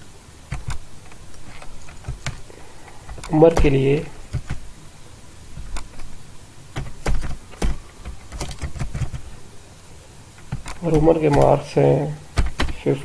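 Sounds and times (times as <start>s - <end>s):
computer keyboard typing: 3.1s - 4.7s, 6.8s - 9.3s, 10.4s - 11.6s, 12.3s - 12.9s.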